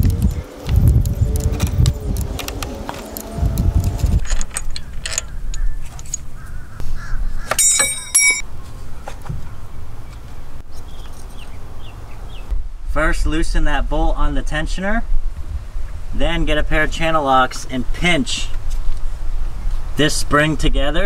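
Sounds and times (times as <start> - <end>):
wind rumbling on microphone: 0.0 - 7.5, 8.7 - 21.0
torque wrench clicks and clanks: 2.2 - 6.2
high ringing call: 7.5 - 8.4.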